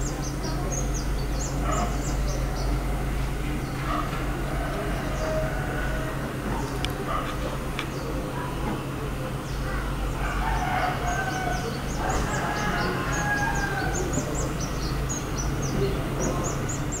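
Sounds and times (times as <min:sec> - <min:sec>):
small birds chirping: 0:00.0 - 0:17.0
steady low hum: 0:00.0 - 0:17.0
rooster crowing: 0:04.6 - 0:06.4, 0:10.2 - 0:14.2.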